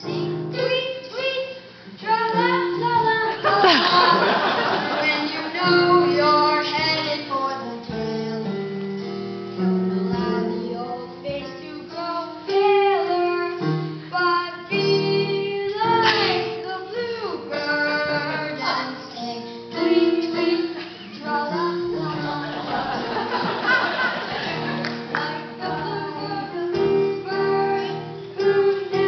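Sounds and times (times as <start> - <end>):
instrumental accompaniment: 0.0 - 29.0
person singing comic song: 14.2 - 22.6.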